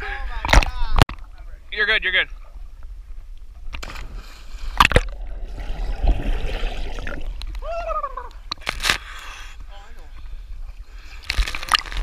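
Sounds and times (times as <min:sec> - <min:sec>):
water splashing: 0:03.7 - 0:08.9
underwater churning and bubbling: 0:04.6 - 0:07.6.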